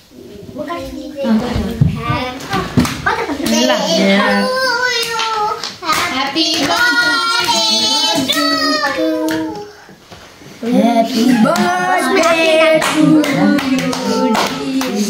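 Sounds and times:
children and adults singing: 0:03.4 - 0:10.0, 0:10.6 - 0:15.0
hand claps: 0:11.5 - 0:15.0.

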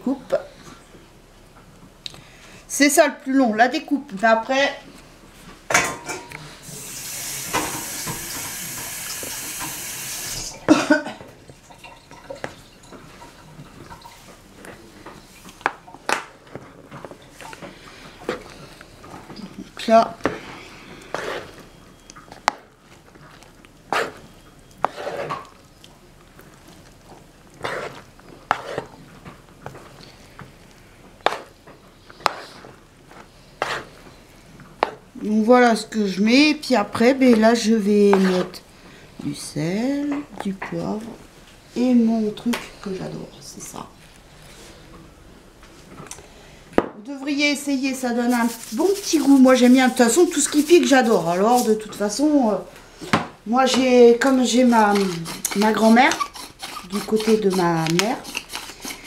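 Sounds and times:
kitchen tap running: 0:06.7 - 0:10.8
pasta rustling in bowl: 0:16.3 - 0:38.7, 0:47.6 - 0:52.6, 0:53.7 - 0:59.0.

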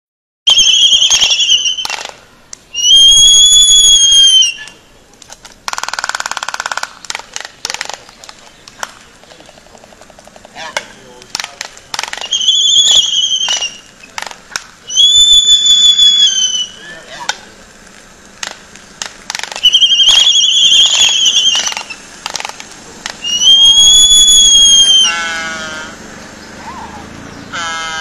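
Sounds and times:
albatross whistled calls: 0:00.5 - 0:02.1, 0:02.7 - 0:04.9, 0:12.0 - 0:17.3, 0:19.5 - 0:22.5, 0:23.2 - 0:26.0, 0:26.6 - 0:28.0
low falling bird call: 0:00.5 - 0:05.1, 0:11.9 - 0:17.9, 0:18.6 - 0:28.0
bill clacks: 0:05.1 - 0:12.4, 0:17.3 - 0:23.3.

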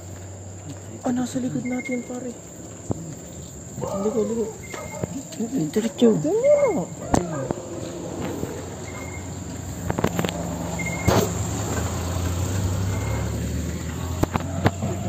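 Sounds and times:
crickets trilling: 0:00.0 - 0:15.0
low engine hum: 0:06.4 - 0:15.0.

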